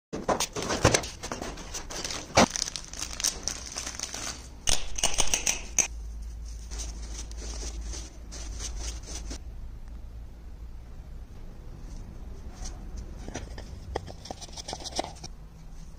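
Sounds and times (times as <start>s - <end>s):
cardboard packaging crinkling: 0.4s - 4.6s.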